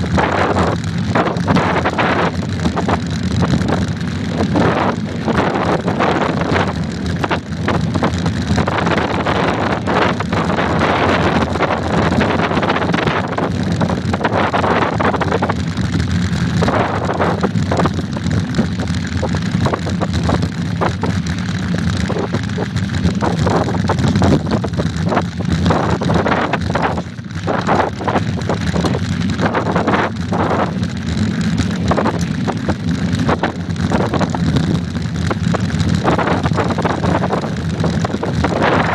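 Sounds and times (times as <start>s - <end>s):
wind rumbling on microphone: 0.0s - 38.9s.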